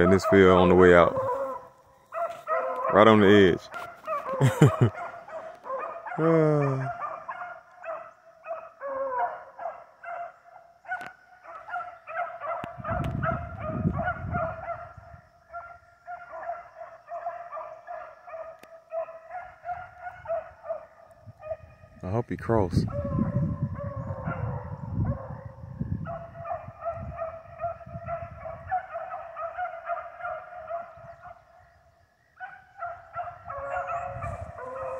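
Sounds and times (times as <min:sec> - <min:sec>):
dog howling: 0:00.0 - 0:03.1, 0:03.8 - 0:10.3, 0:22.8 - 0:31.4, 0:32.6 - 0:34.9
dogs baying and barking: 0:00.0 - 0:22.0, 0:22.7 - 0:34.9.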